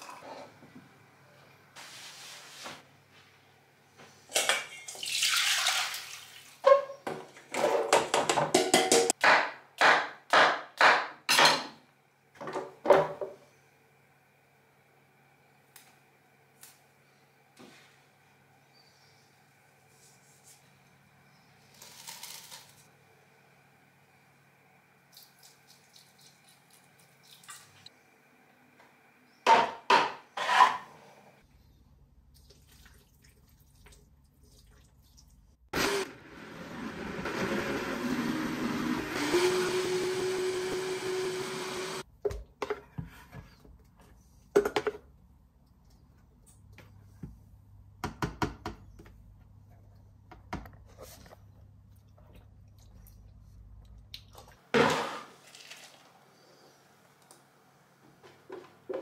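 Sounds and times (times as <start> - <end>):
blender running: 35.7 - 42.0.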